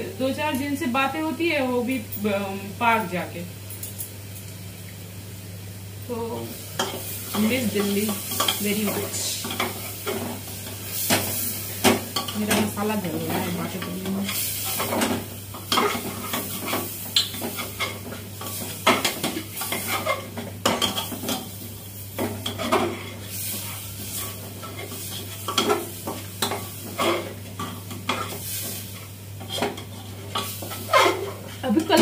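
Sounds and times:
food sizzling: 0:00.0 - 0:32.0
metal spoon scraping a pot: 0:29.4 - 0:31.5.

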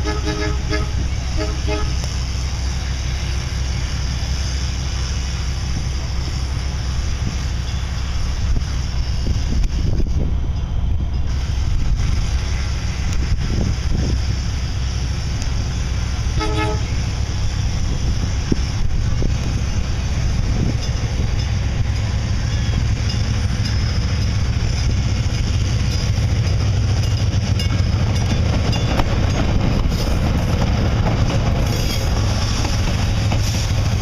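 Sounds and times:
train horn toot: 0:00.0 - 0:02.1, 0:16.3 - 0:17.0
train passing rumble: 0:00.0 - 0:34.0.

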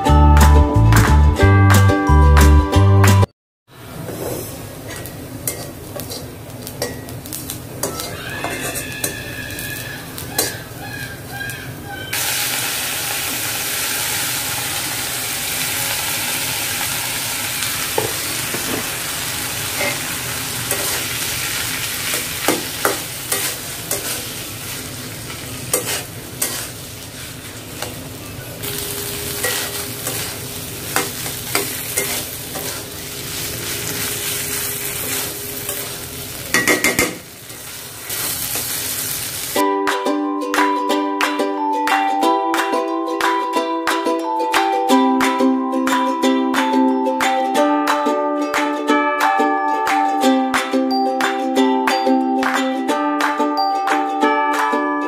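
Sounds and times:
food sizzling in a pan: 0:03.9 - 0:10.8, 0:12.1 - 0:39.6
spatula scraping and tapping pan: 0:04.1 - 0:09.2, 0:20.7 - 0:21.1, 0:22.1 - 0:24.3, 0:25.7 - 0:26.8, 0:29.4 - 0:37.2.

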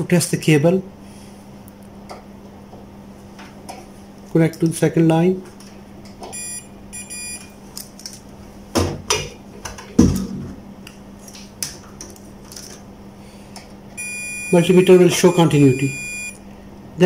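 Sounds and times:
multimeter short beeps: 0:06.4 - 0:07.4, 0:14.0 - 0:16.4.

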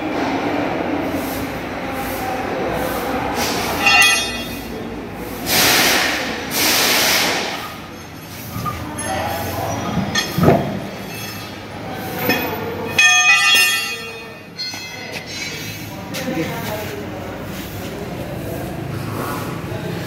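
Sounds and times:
metal clinks: 0:03.8 - 0:04.7, 0:08.0 - 0:15.7.

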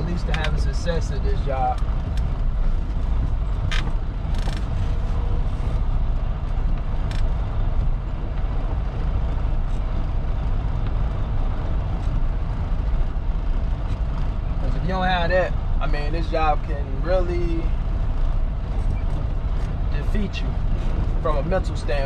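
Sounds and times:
truck diesel engine running: 0:00.0 - 0:22.0.

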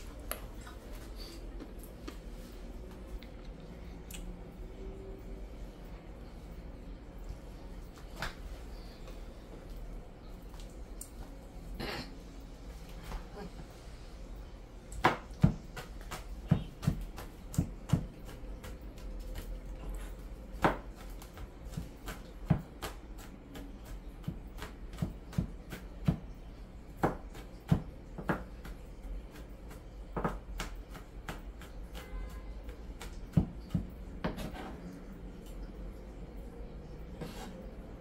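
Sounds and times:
knife chopping on cutting board: 0:15.0 - 0:19.5, 0:20.6 - 0:26.3, 0:30.2 - 0:34.8.

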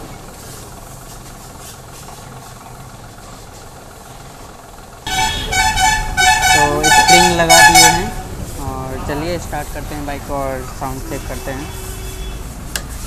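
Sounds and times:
low steady hum: 0:00.0 - 0:11.5
vehicle horns honking: 0:05.0 - 0:12.6.

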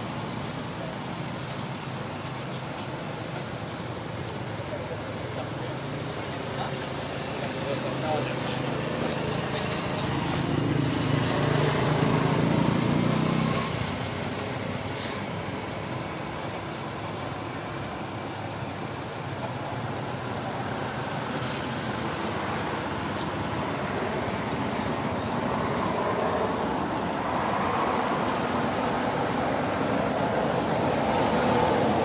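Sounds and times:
road traffic rumble and hiss: 0:00.0 - 0:32.0.

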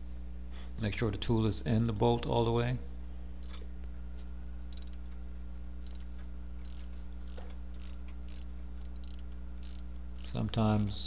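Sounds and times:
steady low hum: 0:00.0 - 0:11.0
ratchet clicking: 0:01.7 - 0:02.3, 0:03.4 - 0:03.7, 0:04.7 - 0:05.2, 0:05.8 - 0:11.0.

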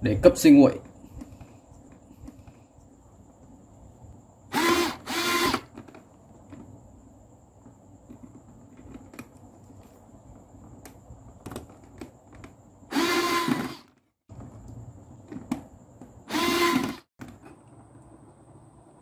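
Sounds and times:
cordless drill running: 0:04.5 - 0:05.7, 0:12.9 - 0:13.9, 0:16.2 - 0:17.0.

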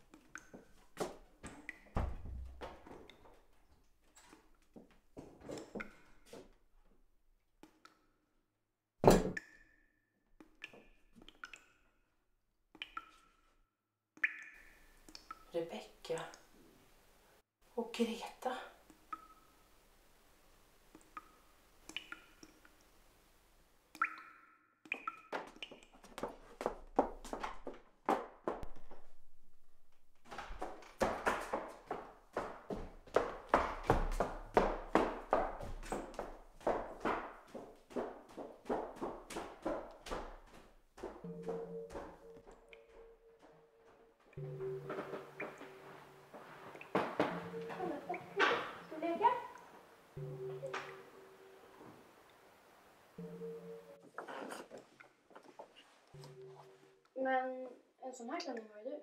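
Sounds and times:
footsteps on wooden floor: 0:00.6 - 0:06.6, 0:25.3 - 0:29.2, 0:29.9 - 0:48.9
objects knocking and scraping: 0:44.4 - 0:48.9.

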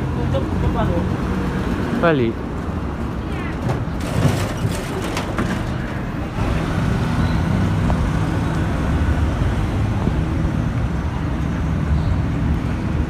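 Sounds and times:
road traffic rumble: 0:00.0 - 0:13.0
vehicle engine humming: 0:00.0 - 0:13.0.

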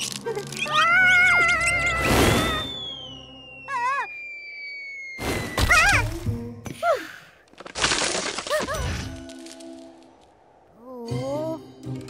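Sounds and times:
cartoon wavering squeal: 0:00.5 - 0:06.1
high tone sliding downward: 0:01.3 - 0:05.5.

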